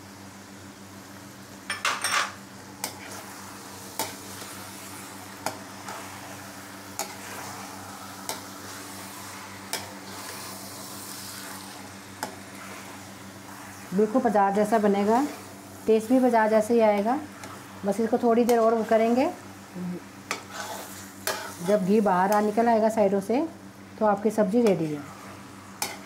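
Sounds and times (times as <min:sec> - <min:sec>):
sauce sizzling: 0:02.4 - 0:26.0
metal spatula scraping a pan: 0:07.0 - 0:15.5, 0:20.3 - 0:22.5.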